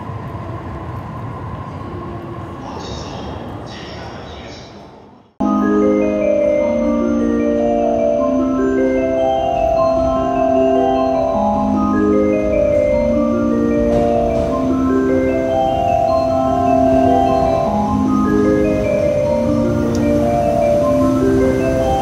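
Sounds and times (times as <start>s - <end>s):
slow melody over chords: 5.4s - 22.0s.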